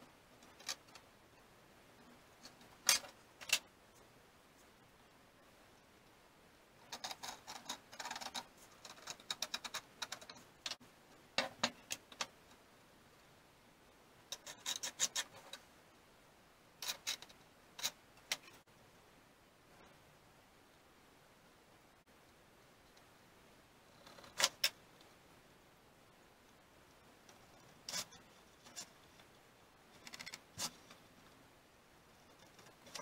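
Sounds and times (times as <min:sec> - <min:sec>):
small metal parts clicking and tapping: 0:06.9 - 0:10.8, 0:16.8 - 0:18.6, 0:29.9 - 0:31.0.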